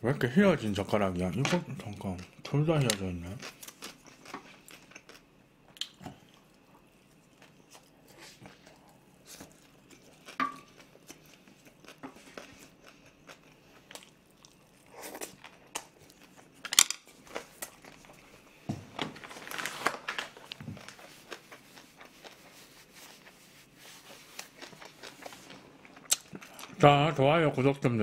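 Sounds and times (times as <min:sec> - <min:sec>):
chewing and mouth noises: 0:03.2 - 0:16.6, 0:20.4 - 0:26.8
paper tissue rustling: 0:19.1 - 0:25.6.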